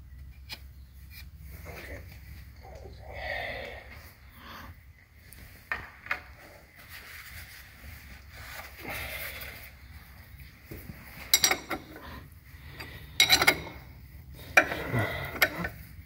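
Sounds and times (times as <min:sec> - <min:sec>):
steady low hum: 0:00.0 - 0:16.0
tools rustling and shuffling: 0:09.5 - 0:16.0.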